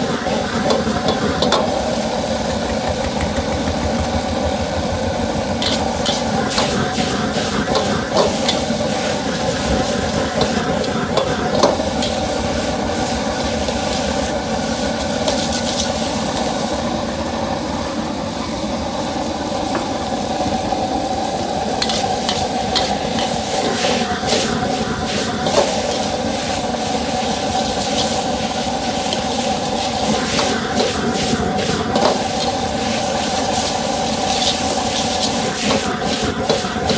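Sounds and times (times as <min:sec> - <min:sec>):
sizzling: 0:00.0 - 0:36.9
spatula scraping a wok: 0:05.6 - 0:16.6, 0:21.8 - 0:36.9.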